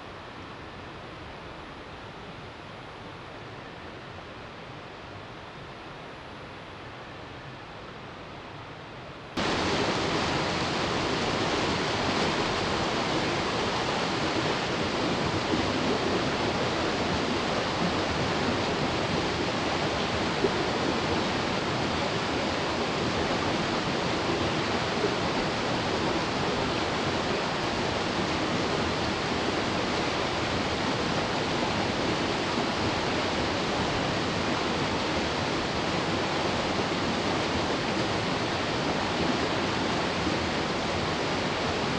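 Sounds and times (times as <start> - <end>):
water rushing over rocks: 9.4 - 41.9.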